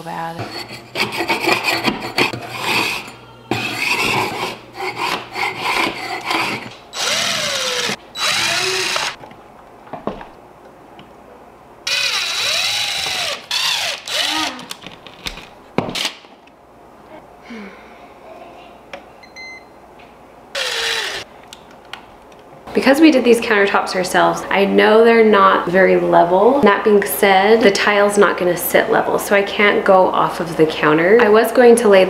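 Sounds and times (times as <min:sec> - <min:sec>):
hand scraper rasping on wall: 0:00.4 - 0:09.2
impact driver whirring: 0:05.8 - 0:09.2, 0:11.9 - 0:14.8, 0:20.6 - 0:21.3.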